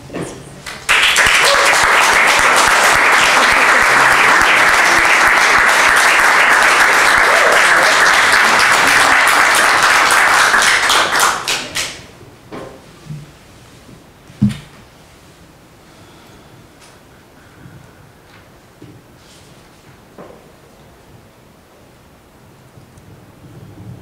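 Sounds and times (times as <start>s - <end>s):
audience applauding: 0.6s - 12.1s
soft knocks: 14.4s - 14.8s.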